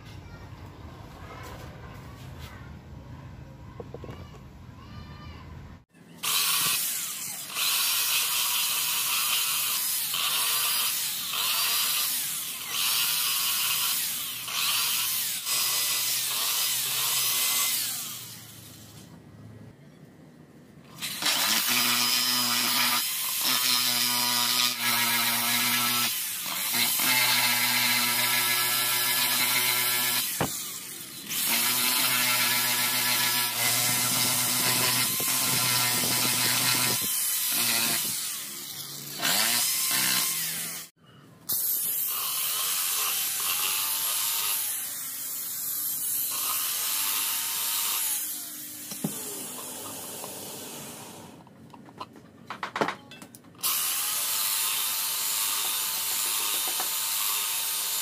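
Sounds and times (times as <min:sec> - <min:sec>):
electric drill humming: 0:06.2 - 0:18.4, 0:21.0 - 0:40.9, 0:41.5 - 0:51.3.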